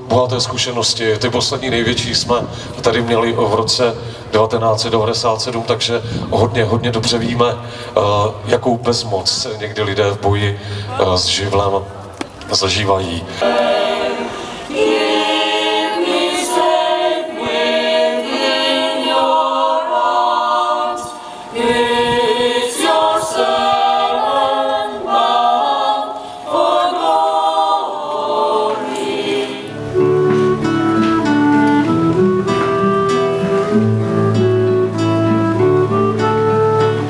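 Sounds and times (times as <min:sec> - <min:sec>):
youth choir singing: 0:13.3 - 0:30.0.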